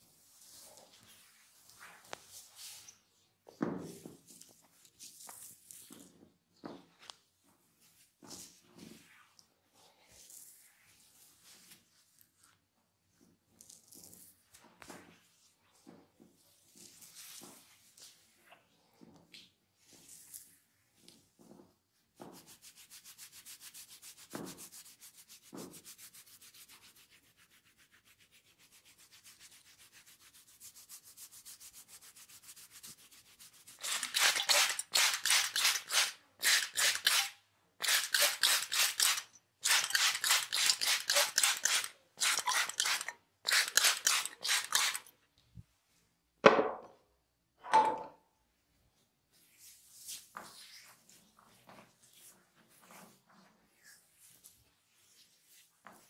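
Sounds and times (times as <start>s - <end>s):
fingers scratching hair: 22.4s - 45.1s.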